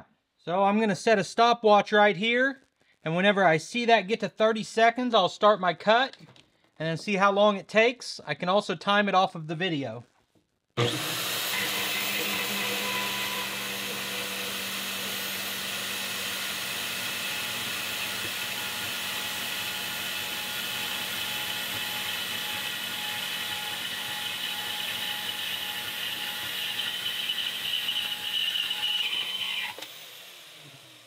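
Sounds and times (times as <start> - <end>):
band saw cutting steel: 10.8 - 31.0.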